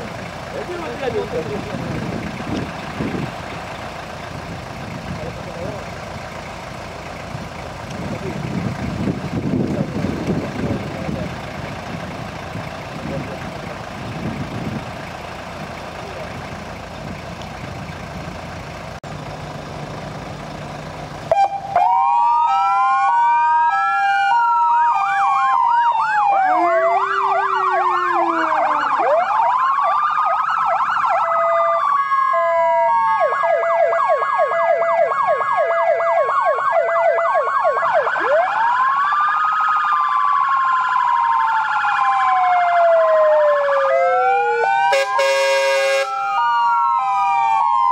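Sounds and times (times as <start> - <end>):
diesel engines idling: 0.0 - 47.9
electronic sirens wailing and yelping: 21.3 - 47.9.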